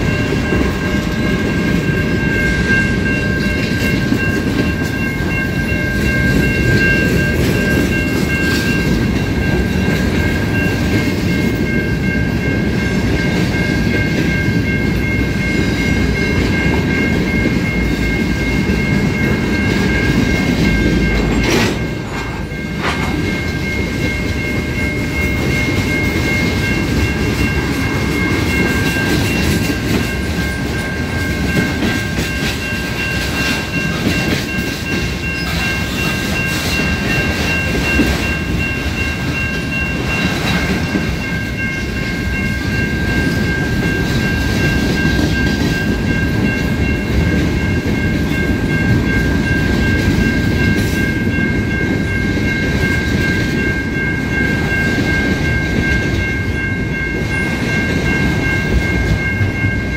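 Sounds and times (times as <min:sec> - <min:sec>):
crossing warning bell ringing: 0:00.0 - 0:59.9
train rumbling past: 0:00.0 - 0:59.9
wheels clattering over rail joints: 0:20.7 - 0:23.8.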